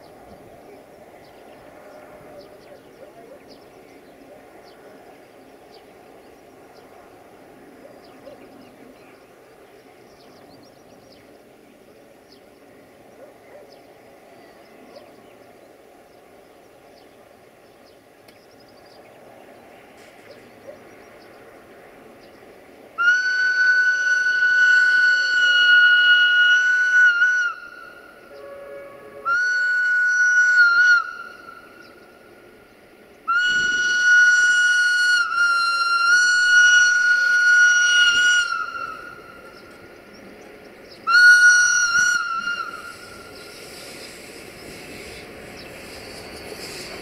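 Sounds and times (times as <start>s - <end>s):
train whistle blasts: 23.0s - 32.0s, 33.3s - 39.7s, 41.0s - 45.2s.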